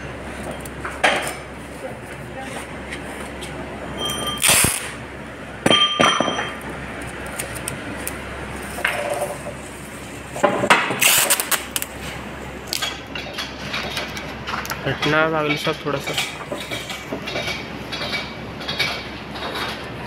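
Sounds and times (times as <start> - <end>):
steady low hum: 0.0 - 20.0
metal clanks and clinks: 5.6 - 6.6.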